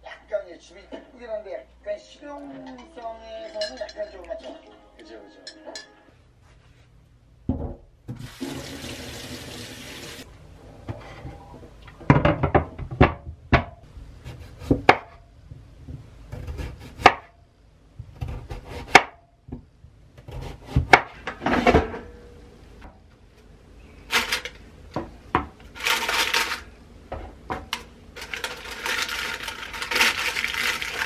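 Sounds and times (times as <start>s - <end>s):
kitchen tap running: 8.1s - 10.3s.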